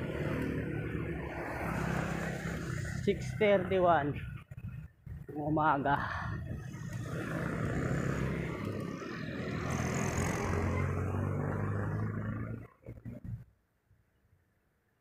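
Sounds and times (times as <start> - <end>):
motorcycle engines humming: 0.0 - 13.4
wind noise: 2.5 - 10.6.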